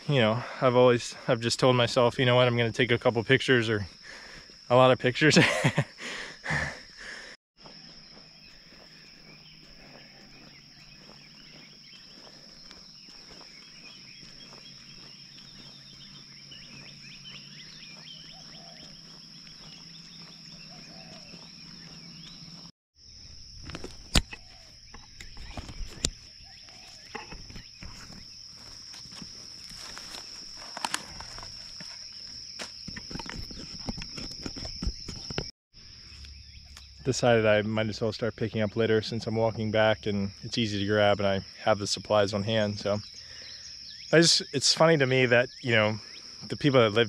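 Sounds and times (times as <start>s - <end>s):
high-pitched insect trill: 0.1s - 7.0s, 7.6s - 47.0s
footsteps in grass: 7.6s - 22.7s, 23.4s - 35.3s.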